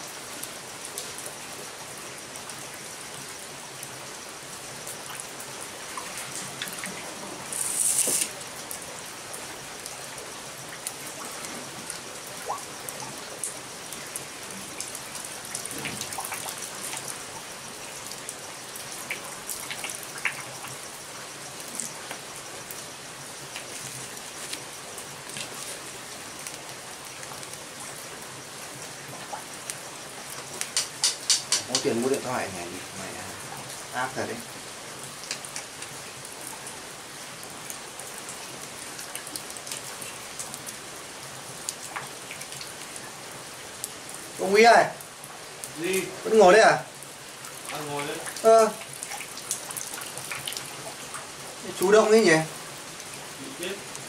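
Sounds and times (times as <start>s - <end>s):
steady rain: 0.0s - 54.0s
small clicks and ticks: 19.0s - 20.8s, 30.4s - 32.0s, 35.2s - 35.9s.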